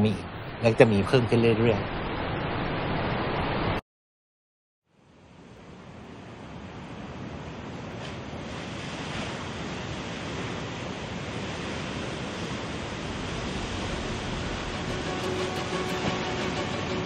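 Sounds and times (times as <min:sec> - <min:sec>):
wind: 0:00.0 - 0:03.8, 0:04.9 - 0:17.0
waves washing: 0:06.4 - 0:17.0.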